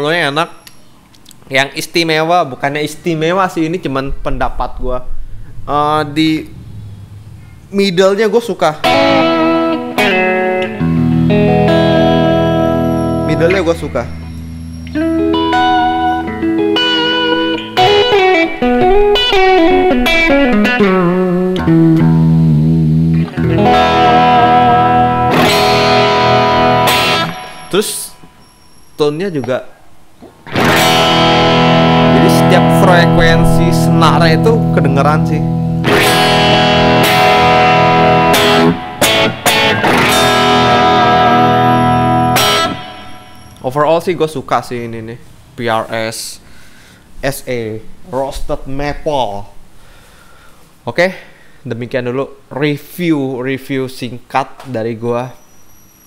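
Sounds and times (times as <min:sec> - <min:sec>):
electric guitar notes and chords: 0:08.8 - 0:28.4, 0:30.2 - 0:43.6.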